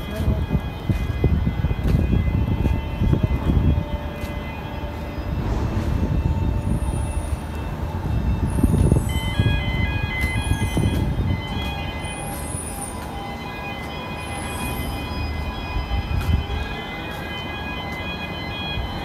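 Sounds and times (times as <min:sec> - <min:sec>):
steady high whining tones: 0:00.0 - 0:19.0
heavy machinery rumbling: 0:04.7 - 0:09.4.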